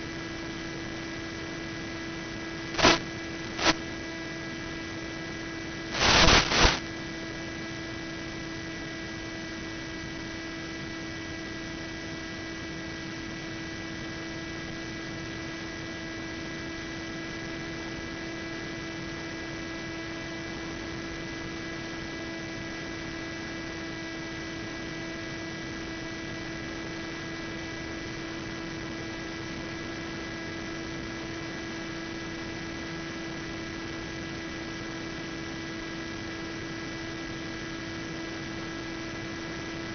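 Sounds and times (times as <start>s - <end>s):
electrical hum and hiss: 0.0s - 39.9s
burst of static: 2.7s - 3.8s, 5.9s - 6.9s
high-pitched whines: 2.7s - 3.8s, 5.9s - 6.8s.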